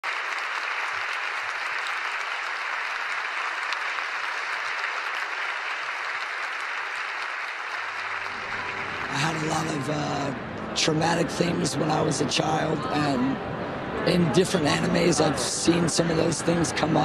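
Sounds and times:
large audience applauding: 0.0s - 10.4s.

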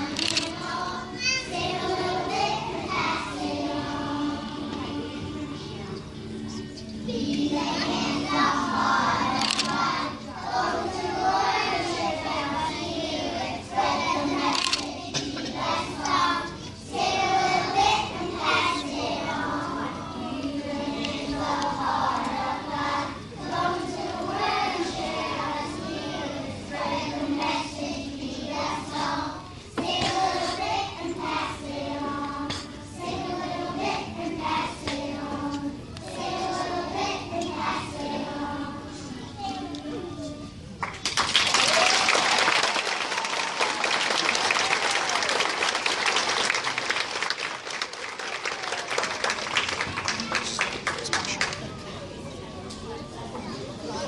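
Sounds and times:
children singing together: 0.0s - 39.8s.

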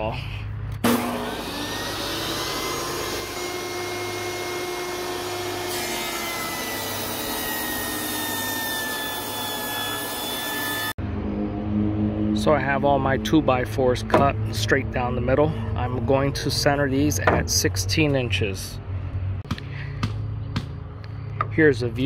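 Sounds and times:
table saw ripping wood: 0.8s - 11.0s.

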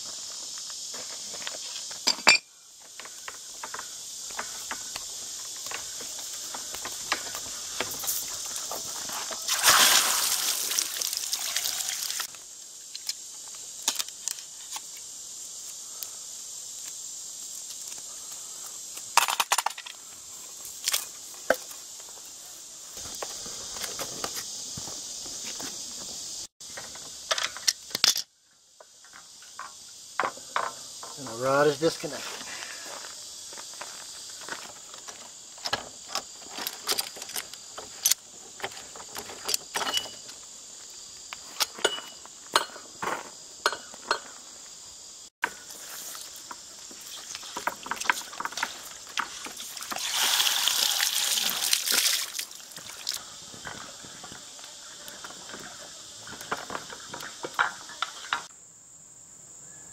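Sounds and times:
high insect chorus: 0.0s - 59.9s
clicks and knocks on metal pipe: 43.6s - 44.3s.

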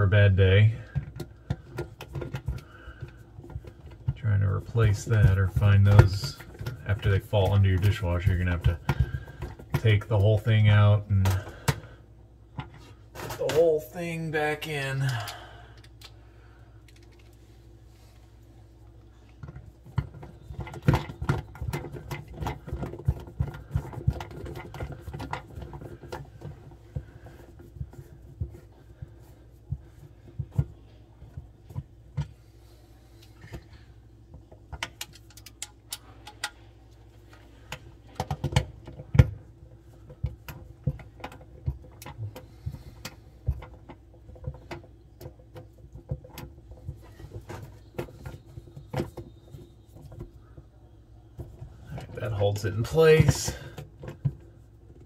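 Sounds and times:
faint steady hum: 0.0s - 55.0s
clicks of plastic parts handled: 16.8s - 17.4s, 33.2s - 36.6s.

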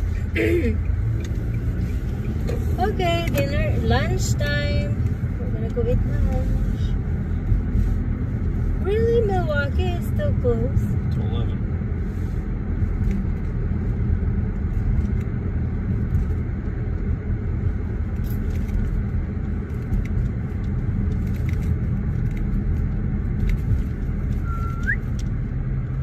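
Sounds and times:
car road and engine noise: 0.0s - 26.0s.

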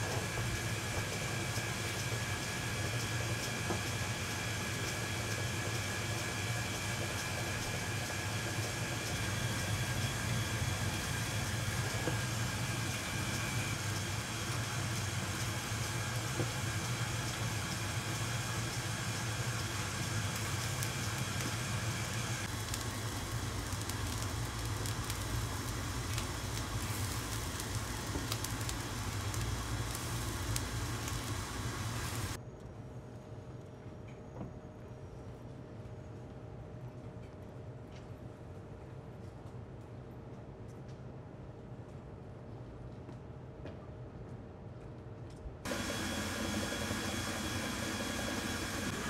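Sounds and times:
kitchen equipment hum and hiss: 0.0s - 49.0s.

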